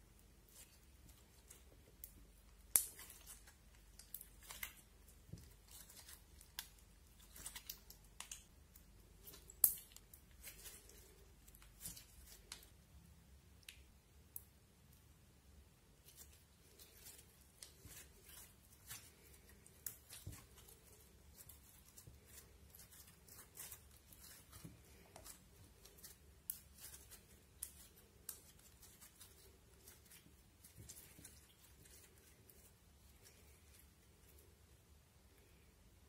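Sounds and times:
slime kneaded by hand: 0:16.0 - 0:34.3.

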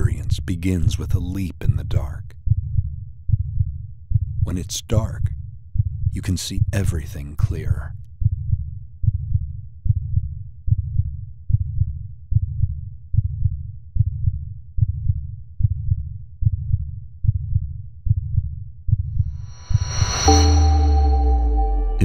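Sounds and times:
low heartbeat thumps: 0:00.0 - 0:04.5, 0:08.2 - 0:22.0.

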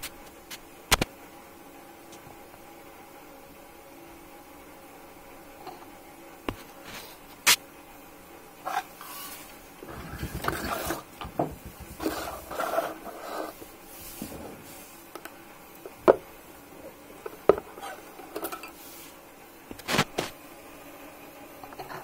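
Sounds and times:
rustling and scraping on cardboard: 0:08.7 - 0:14.9
objects knocking down: 0:09.8 - 0:13.1.

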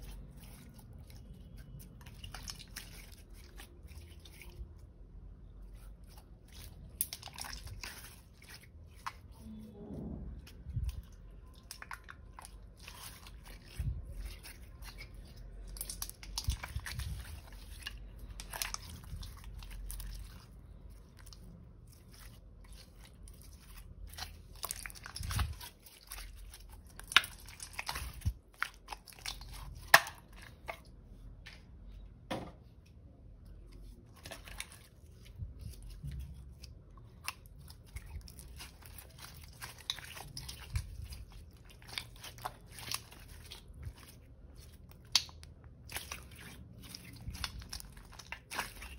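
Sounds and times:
slime squelching by hand: 0:00.0 - 0:31.9, 0:33.2 - 0:48.9.

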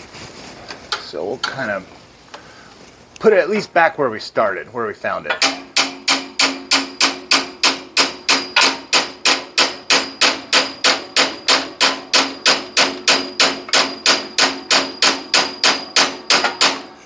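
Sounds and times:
hammer striking metal punch: 0:05.3 - 0:17.0.

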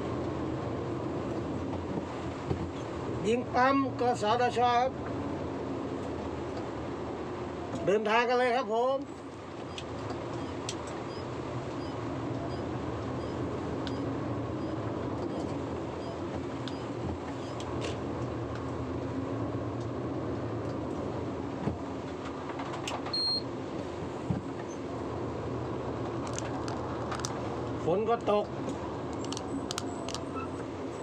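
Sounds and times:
diesel truck engine running: 0:09.1 - 0:31.0
short high beep: 0:23.2 - 0:23.4.

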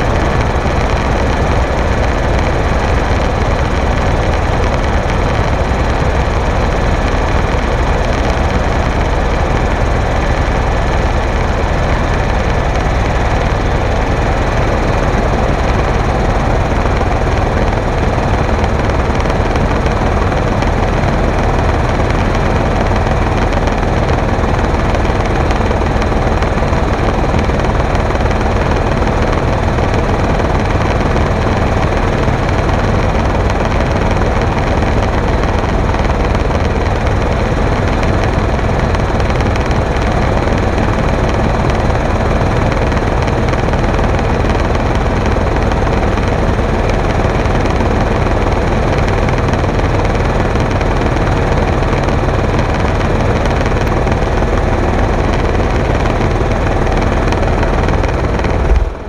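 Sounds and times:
helicopter rotor and engine: 0:00.0 - 0:59.0.

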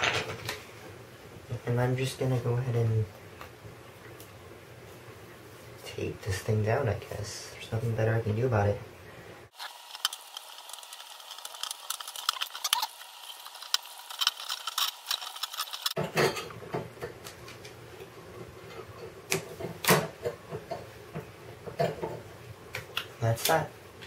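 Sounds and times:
electrical tape crackling: 0:09.5 - 0:16.0.

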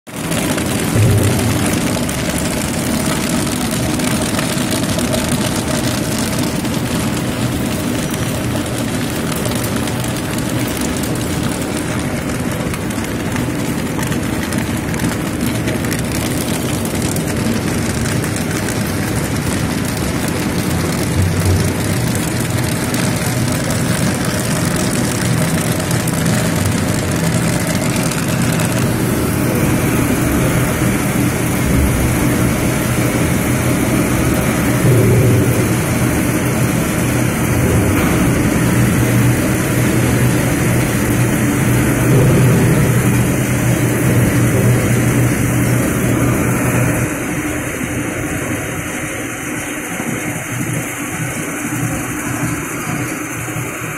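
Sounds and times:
machinery drone: 0:00.2 - 0:09.5, 0:14.5 - 0:53.9
low hum: 0:00.4 - 0:04.3, 0:16.4 - 0:48.3.

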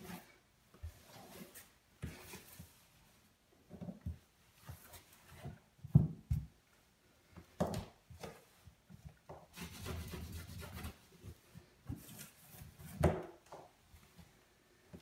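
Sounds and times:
cloth wiping bathtub: 0:00.0 - 0:05.8.

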